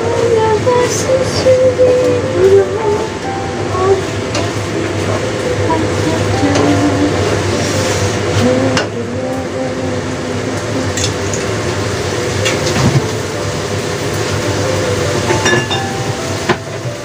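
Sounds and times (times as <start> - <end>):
food sizzling in a wok: 4.1 - 8.4, 10.6 - 17.0.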